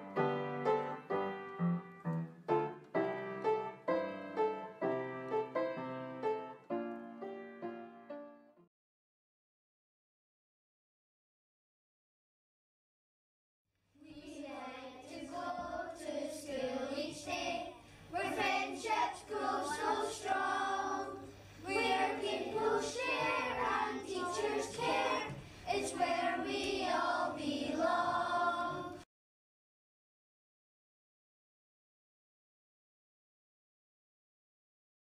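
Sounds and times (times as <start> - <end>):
children singing together: 14.0 - 29.0.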